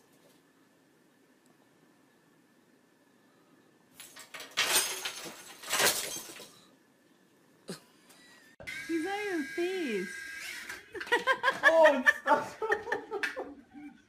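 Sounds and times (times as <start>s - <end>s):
clattering crash: 4.0s - 6.7s.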